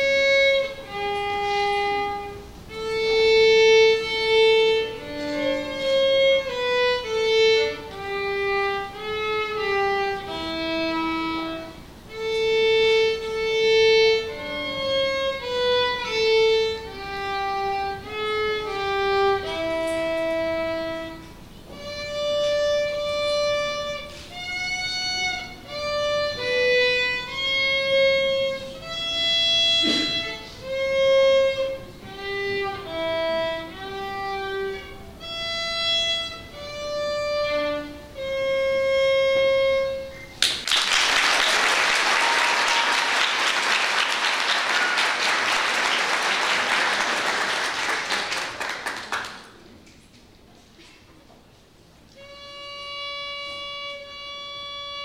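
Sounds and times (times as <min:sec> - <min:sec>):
solo violin melody: 0:00.0 - 0:40.3, 0:52.0 - 0:55.0
audience applause: 0:40.4 - 0:49.6.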